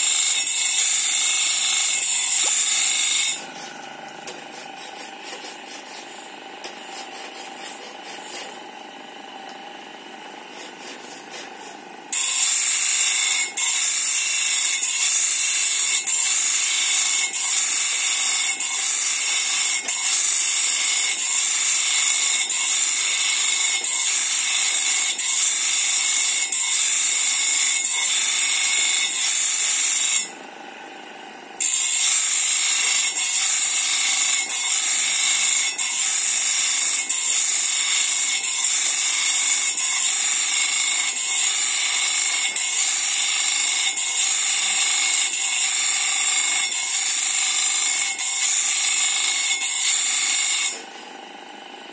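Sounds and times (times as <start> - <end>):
bench grinder grinding steel: 0.0 - 51.9.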